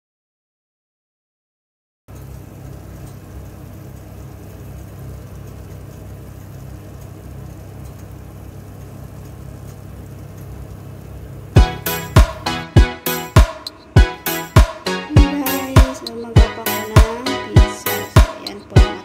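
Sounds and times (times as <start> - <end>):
low mechanical hum: 2.1 - 19.0
music: 11.6 - 19.0.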